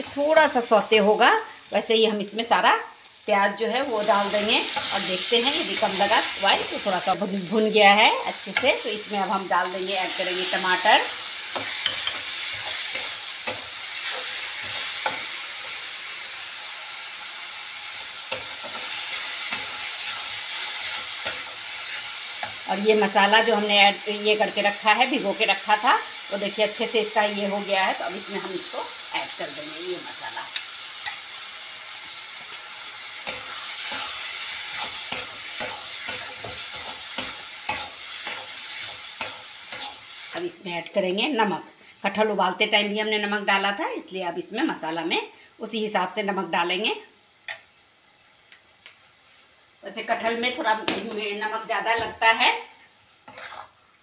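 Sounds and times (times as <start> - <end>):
vegetables sizzling in oil: 0.0 - 54.0
spatula scraping pan: 8.4 - 15.9, 32.4 - 40.4, 53.2 - 53.8
metal spatula scraping pan: 33.2 - 40.0, 53.2 - 53.8.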